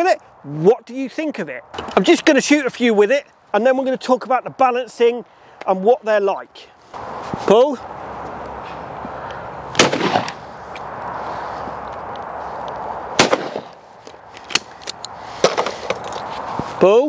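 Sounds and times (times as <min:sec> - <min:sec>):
shotgun shots with echo: 0:09.8 - 0:10.4, 0:13.2 - 0:13.7.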